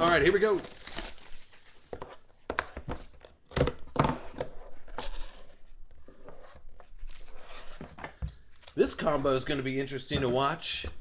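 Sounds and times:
plastic shrink wrap crinkling: 0.0s - 1.8s.

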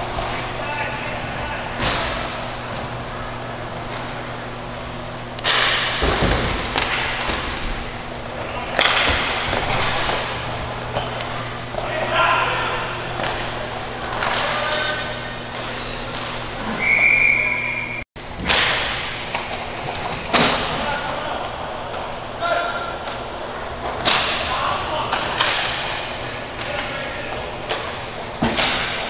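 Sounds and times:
hockey sticks and shots hitting boards: 1.8s - 2.5s, 5.4s - 7.8s, 8.7s - 11.1s, 18.4s - 21.1s, 22.8s - 29.0s
players shouting: 11.8s - 13.8s
referee's whistle: 16.8s - 18.0s.

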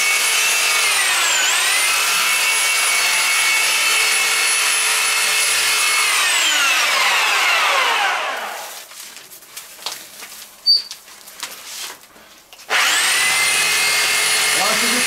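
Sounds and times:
reciprocating saw cutting wood: 0.0s - 8.8s, 12.7s - 15.0s.

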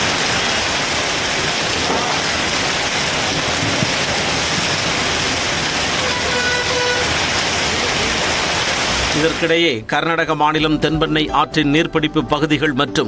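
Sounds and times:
cars driving through rain: 0.0s - 9.5s
heavy rain on road: 0.0s - 9.5s
vehicle horn: 5.9s - 7.4s.

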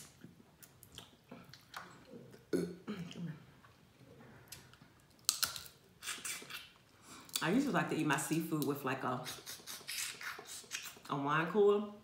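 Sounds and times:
sucking and slurping: 6.0s - 7.4s, 9.2s - 11.1s.

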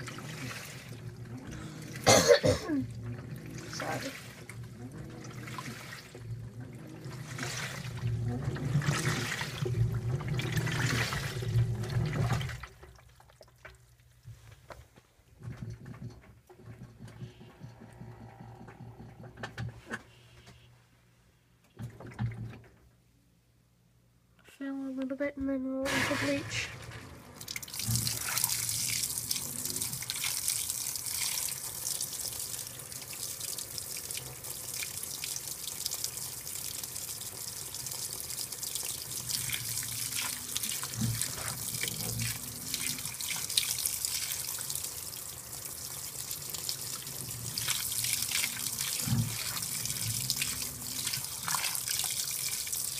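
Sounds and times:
water pouring into washer: 0.0s - 14.1s, 25.9s - 52.9s.

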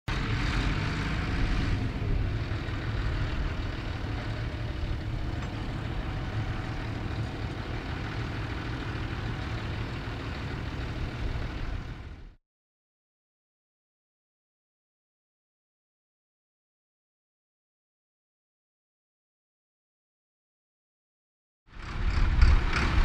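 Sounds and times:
tractor diesel engine under load: 0.1s - 12.4s, 21.7s - 23.0s.

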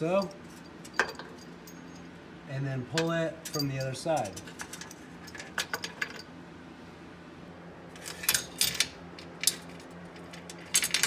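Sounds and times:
metal clinking and rattling: 0.1s - 2.1s, 3.4s - 6.3s, 8.0s - 11.0s.

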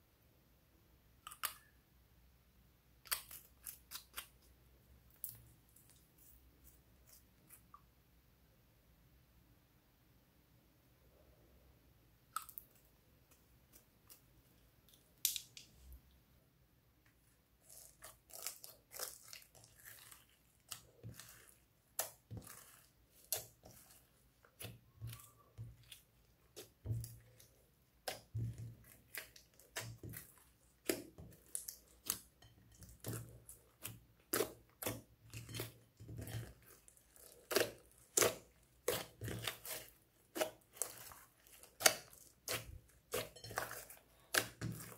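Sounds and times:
slime squelching and popping: 17.6s - 44.9s.

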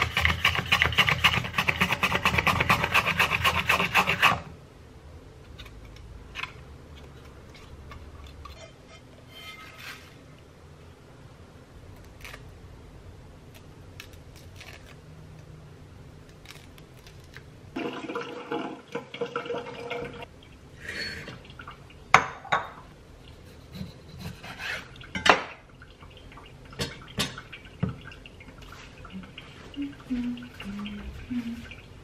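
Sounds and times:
utensils scraping and rattling on dishes: 7.6s - 10.2s.

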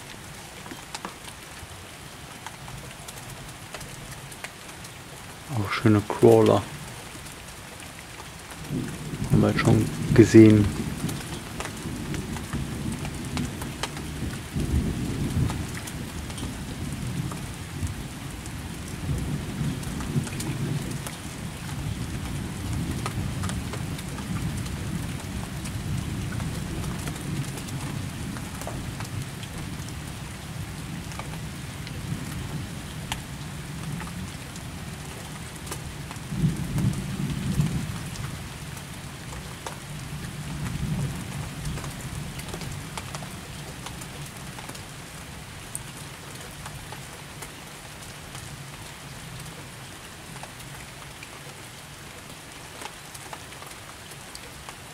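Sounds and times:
rain falling: 0.0s - 54.9s
thunder rumbling: 8.7s - 18.0s.

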